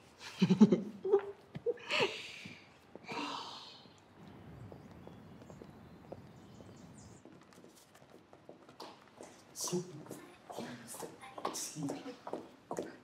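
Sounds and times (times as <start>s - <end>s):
soft breathy sigh: 1.8s - 4.0s.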